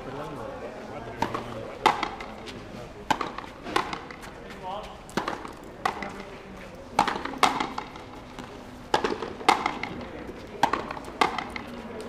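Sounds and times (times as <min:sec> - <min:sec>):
ball cracking off rackets: 0:01.2 - 0:12.0
ball smacking against wall: 0:08.9 - 0:10.0.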